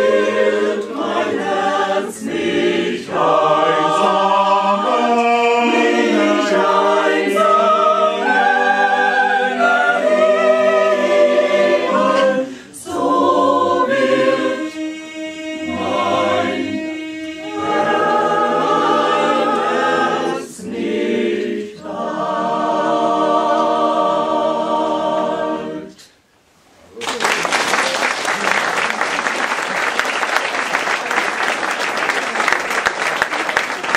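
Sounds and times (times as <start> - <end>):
mixed choir singing unaccompanied: 0.0 - 26.1.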